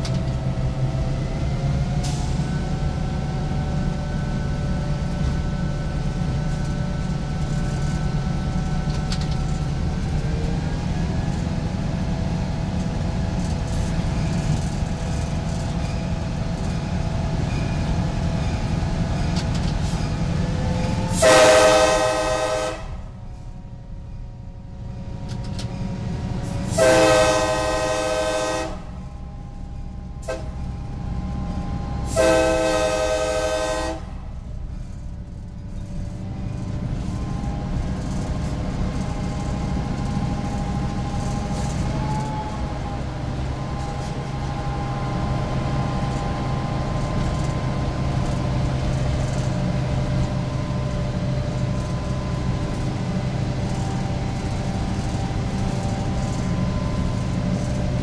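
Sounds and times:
locomotive engine rumble: 0.0s - 58.0s
air horn blasts: 21.1s - 23.1s, 26.7s - 29.0s, 30.2s - 30.6s, 32.1s - 34.2s.

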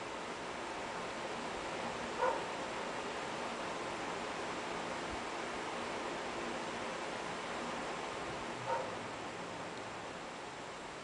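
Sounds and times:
steady background hiss: 0.0s - 11.0s
short pitched yip: 2.2s - 2.5s, 8.7s - 9.0s.

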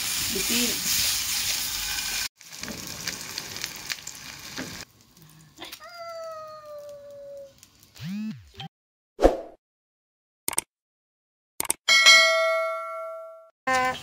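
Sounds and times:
egg sizzling in hot oil: 0.0s - 5.4s.

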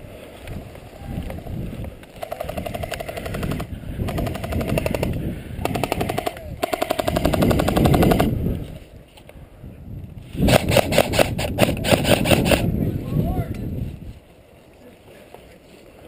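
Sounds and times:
airsoft rifle full auto bursts: 2.2s - 8.3s.

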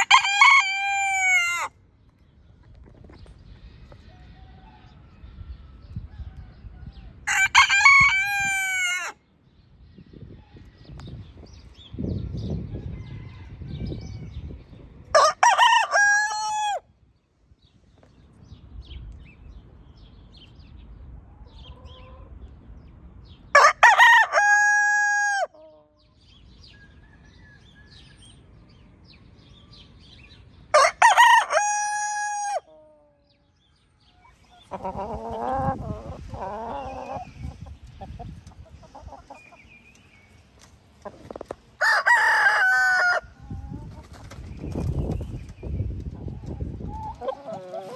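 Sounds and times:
rooster crowing: 0.0s - 1.7s, 30.7s - 32.7s, 41.8s - 43.3s
chicken calls: 0.0s - 1.8s, 2.9s - 9.2s, 12.5s - 16.8s, 23.5s - 26.2s, 30.7s - 47.9s.

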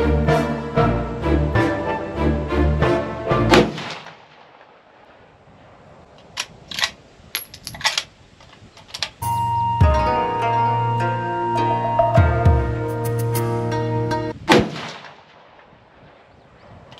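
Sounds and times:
background music: 0.0s - 3.9s, 9.2s - 14.4s
sharp gunshots: 3.5s - 5.3s, 14.5s - 16.3s.

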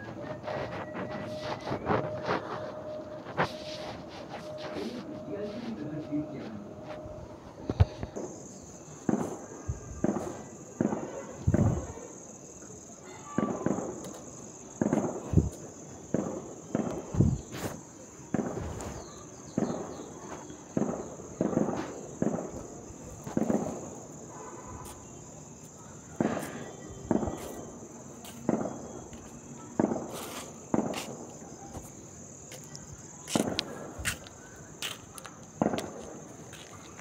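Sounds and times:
steady high-pitched tone: 0.0s - 8.2s.

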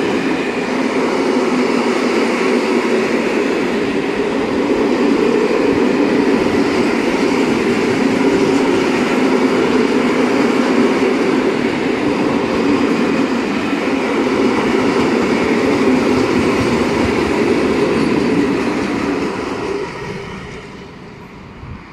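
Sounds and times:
freight train rumbling past: 0.0s - 21.9s.

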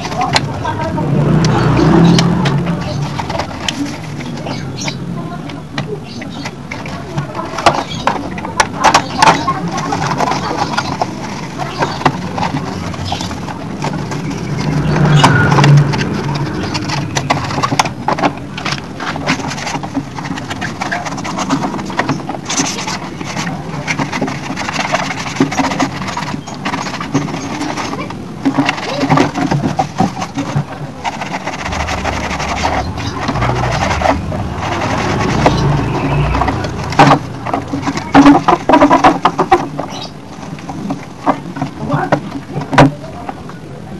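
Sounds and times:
vehicle engine rumble: 0.0s - 8.6s, 9.3s - 22.4s, 30.2s - 41.2s
hands scrubbing plastic casing: 0.0s - 43.5s
water splashing: 30.9s - 38.1s
low hum: 31.4s - 37.5s.

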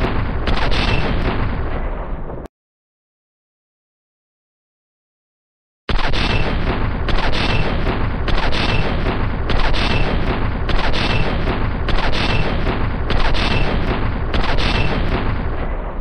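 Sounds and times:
heavy machine gun firing: 0.0s - 2.4s, 5.9s - 16.0s.

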